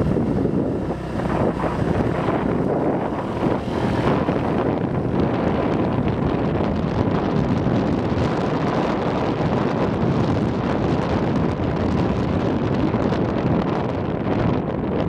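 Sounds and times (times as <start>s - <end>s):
motorbike engine: 0.0s - 11.3s
road noise: 0.0s - 15.0s
wind buffeting microphone: 0.0s - 15.0s.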